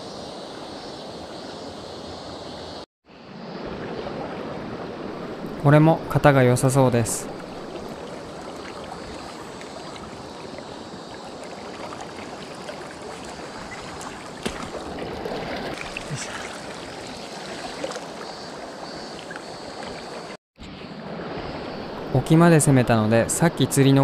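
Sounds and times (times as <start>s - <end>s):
river rushing over stones: 11.3s - 18.1s.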